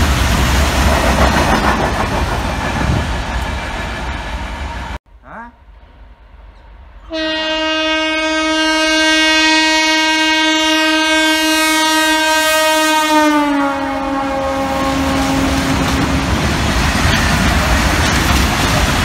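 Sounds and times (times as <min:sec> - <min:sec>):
train wagons rolling by: 0:00.0 - 0:05.0, 0:14.4 - 0:19.0
train horn blast: 0:07.0 - 0:16.3.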